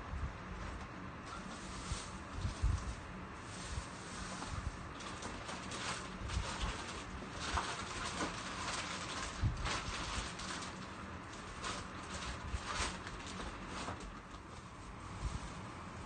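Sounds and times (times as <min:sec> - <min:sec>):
plastic bags crinkling: 0:04.9 - 0:14.7.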